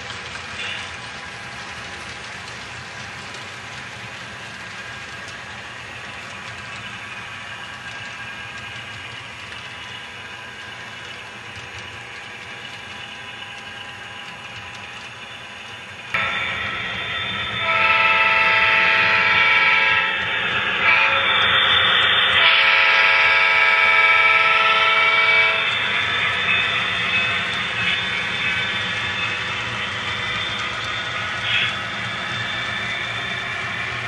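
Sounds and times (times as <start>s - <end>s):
model train rolling rumble: 0.0s - 34.0s
locomotive horn blasts: 17.6s - 20.2s, 20.8s - 21.2s, 22.4s - 25.7s.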